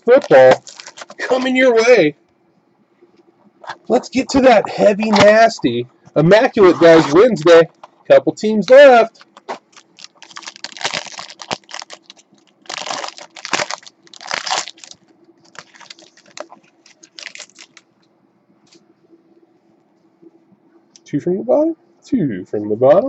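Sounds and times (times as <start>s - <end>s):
foil wrapper crinkling and tearing: 0.0s - 1.8s, 8.6s - 17.9s.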